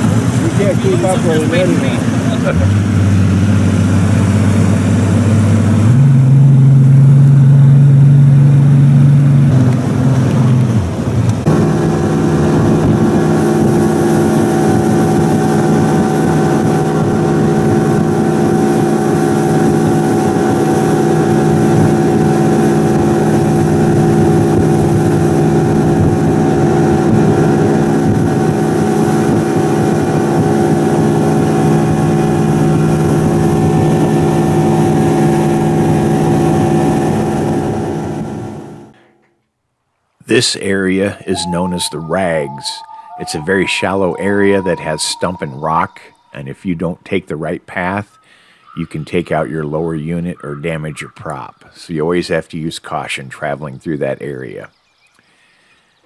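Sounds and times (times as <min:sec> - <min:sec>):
wind and water rushing: 0:00.0 - 0:07.0, 0:07.6 - 0:38.6
outboard motor running: 0:00.0 - 0:38.9.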